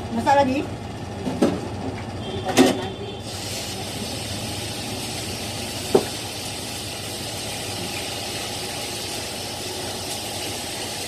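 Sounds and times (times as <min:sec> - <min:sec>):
exhaust fan: 0:00.0 - 0:11.0
gas stove burner rushing: 0:02.2 - 0:11.0.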